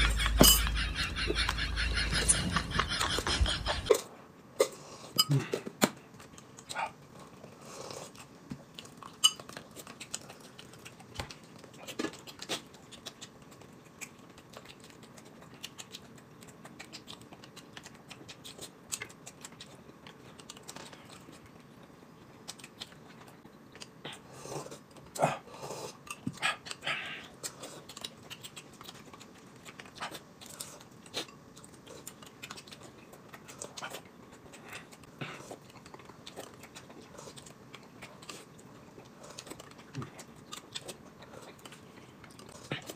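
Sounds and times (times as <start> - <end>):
people chewing: 0.0 - 42.9
spoons clinking against glass cups: 0.1 - 0.8.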